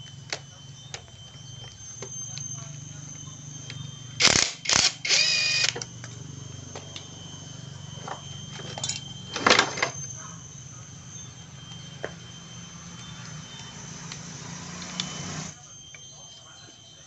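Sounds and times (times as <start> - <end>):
impact wrench whirring: 4.2 - 6.0, 12.5 - 15.5
metal parts clicking: 8.6 - 10.0.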